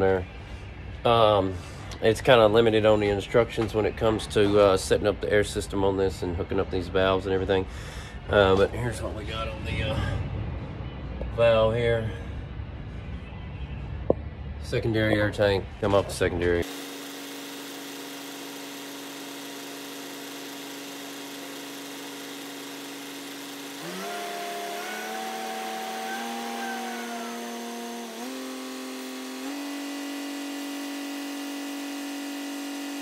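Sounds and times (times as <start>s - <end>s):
truck diesel engine revving: 17.7s - 33.0s.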